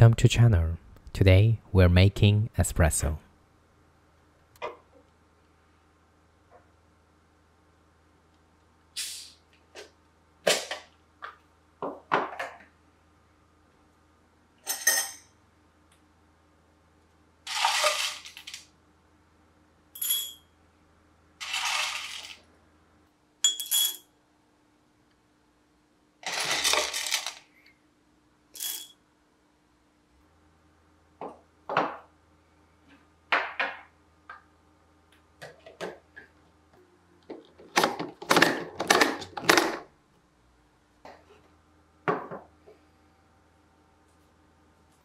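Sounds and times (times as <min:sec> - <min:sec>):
coffee beans clattering in a cup: 0:17.5 - 0:18.6, 0:21.4 - 0:22.4, 0:26.2 - 0:27.4.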